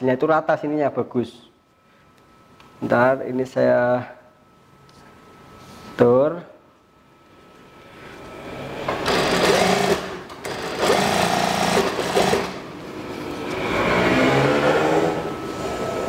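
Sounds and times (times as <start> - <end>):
sewing machine stitching: 9.0 - 12.6.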